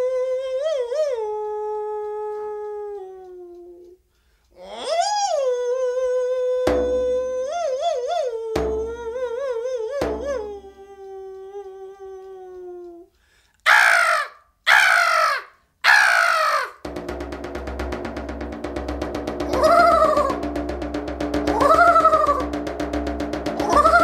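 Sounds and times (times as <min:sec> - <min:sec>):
person singing a wavering note: 0:04.8 - 0:13.0, 0:16.9 - 0:24.0
single drum strokes: 0:06.7 - 0:07.5, 0:08.6 - 0:09.3, 0:10.0 - 0:10.6, 0:16.9 - 0:24.0
harsh caw-like vocal cries: 0:13.7 - 0:16.8.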